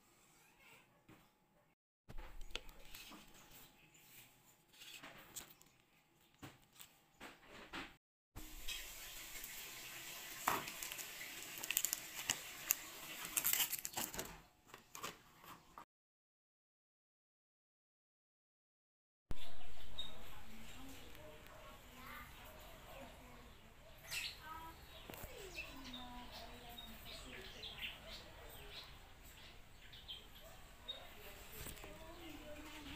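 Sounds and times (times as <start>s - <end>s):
plastic wrapper crinkling: 10.4s - 15.1s
small birds chirping: 19.3s - 32.9s.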